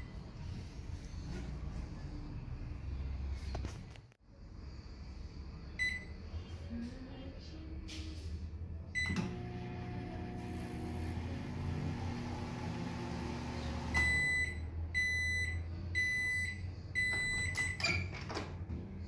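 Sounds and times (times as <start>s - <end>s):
microwave beeps: 5.8s - 6.2s, 9.0s - 10.4s, 13.0s - 18.1s
microwave oven humming: 9.0s - 17.1s.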